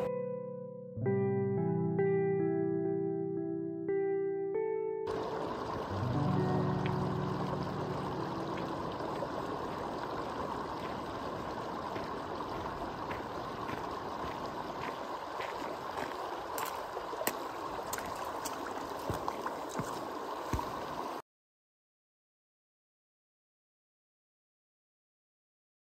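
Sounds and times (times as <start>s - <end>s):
mountain stream rushing: 5.1s - 21.2s
footsteps on gravel: 8.5s - 20.8s.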